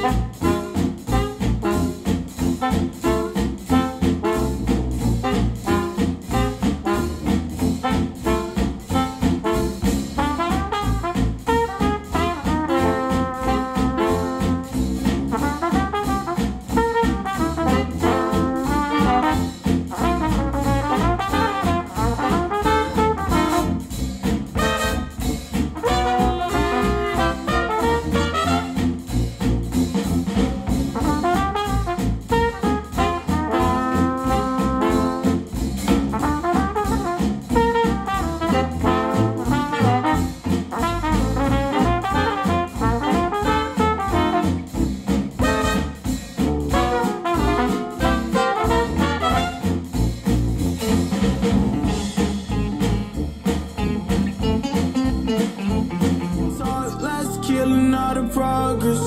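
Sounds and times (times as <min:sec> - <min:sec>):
instrumental music with horns: 0:00.0 - 0:59.0.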